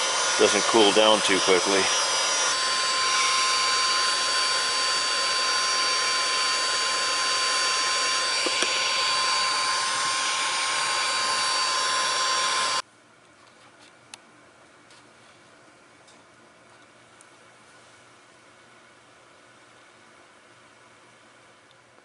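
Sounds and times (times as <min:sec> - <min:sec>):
heat gun blowing with whine: 0:00.0 - 0:12.8.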